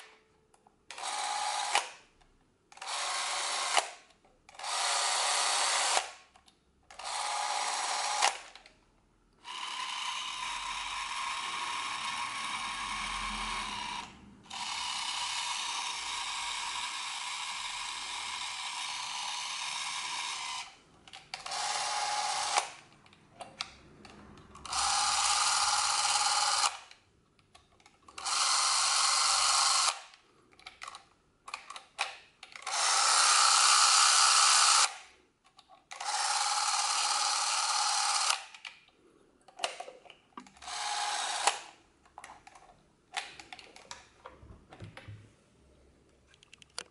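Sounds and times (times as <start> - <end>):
film camera motor whirring: 2.8 - 3.9, 4.5 - 6.1, 6.9 - 8.6, 9.4 - 20.8, 21.4 - 22.8, 24.6 - 26.9, 28.2 - 30.1, 32.6 - 35.0, 35.9 - 38.5, 40.6 - 41.7
small clicks: 46.3 - 46.9.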